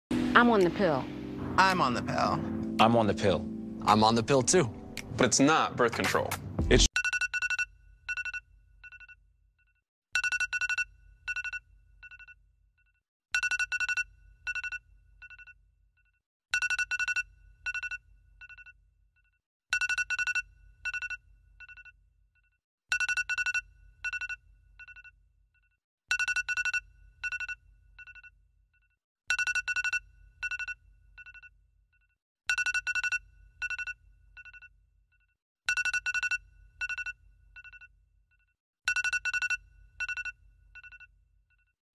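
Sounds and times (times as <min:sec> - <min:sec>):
electronic ringtone beeping: 0:06.9 - 0:09.2, 0:10.2 - 0:12.4, 0:13.4 - 0:15.6, 0:16.6 - 0:18.7, 0:19.7 - 0:21.9, 0:22.9 - 0:25.1, 0:26.1 - 0:28.3, 0:29.3 - 0:31.5, 0:32.5 - 0:34.7, 0:35.7 - 0:37.9, 0:38.9 - 0:41.1.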